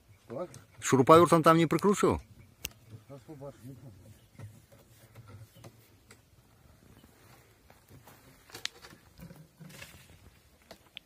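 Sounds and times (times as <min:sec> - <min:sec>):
faint rustling: 0:02.8 - 0:10.9
small clicks and scrapes: 0:04.2 - 0:06.3, 0:07.3 - 0:11.0.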